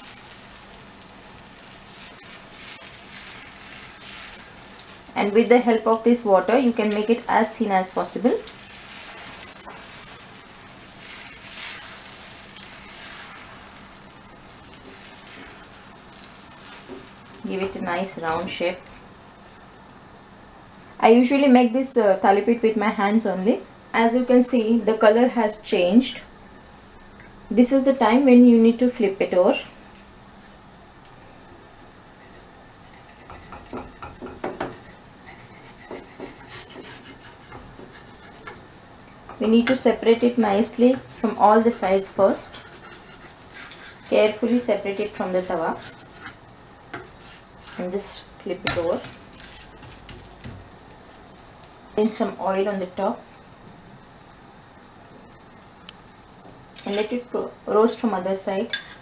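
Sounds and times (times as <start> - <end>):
batter sizzling on hot griddle: 0.0 - 21.6, 31.6 - 52.8
faint steady hiss: 0.0 - 59.0.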